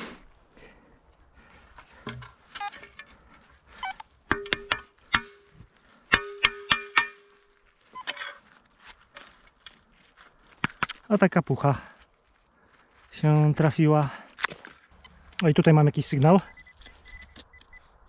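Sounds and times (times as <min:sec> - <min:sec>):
metal tin clanking on spade: 0:04.3 - 0:07.5.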